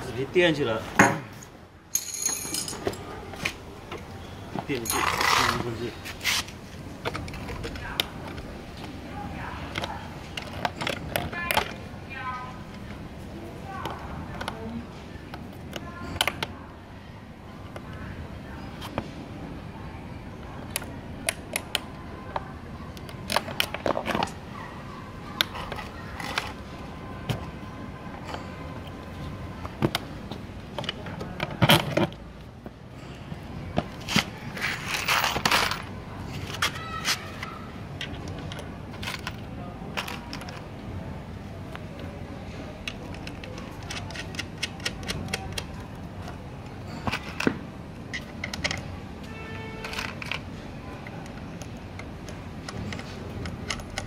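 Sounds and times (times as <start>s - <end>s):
metal bracket and bolts clinking: 1.9s - 3.1s.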